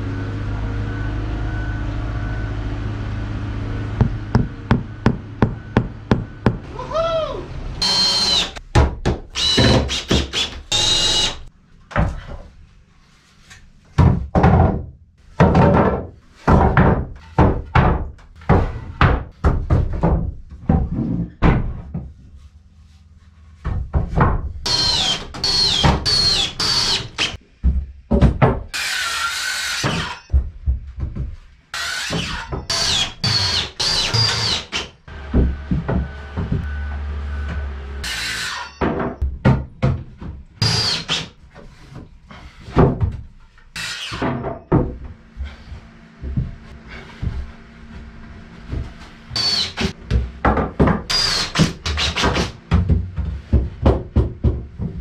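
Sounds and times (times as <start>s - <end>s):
knocks and thuds on wood: 4.0s - 6.7s, 8.7s - 10.6s, 13.9s - 22.2s, 23.6s - 24.7s, 27.6s - 28.7s, 29.9s - 31.5s, 35.2s - 36.7s, 38.8s - 43.3s, 48.7s - 55.0s
power tool noise: 7.7s - 8.6s, 9.3s - 11.5s, 24.6s - 27.4s, 28.7s - 30.3s, 31.8s - 38.8s, 40.6s - 41.3s, 49.3s - 50.0s, 51.1s - 52.6s.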